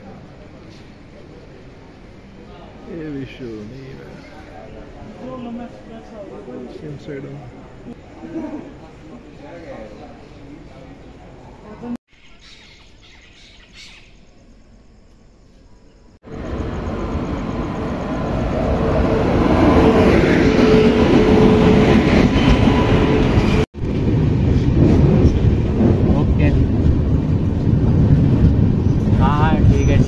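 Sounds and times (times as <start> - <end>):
train wheels rumbling on rails: 16.3 - 30.0.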